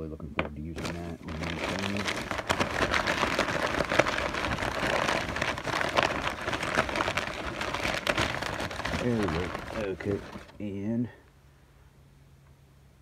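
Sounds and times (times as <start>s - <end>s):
packing paper crackling and rustling: 0.6s - 10.8s.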